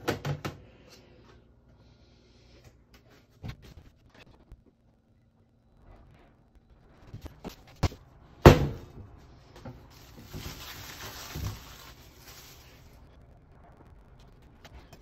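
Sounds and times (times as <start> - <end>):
cling film crinkling: 9.8 - 15.0.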